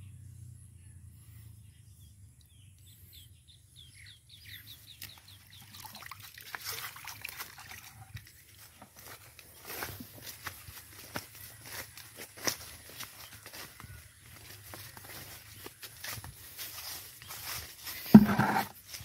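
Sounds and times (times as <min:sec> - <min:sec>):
bird chirping: 0:00.0 - 0:06.0.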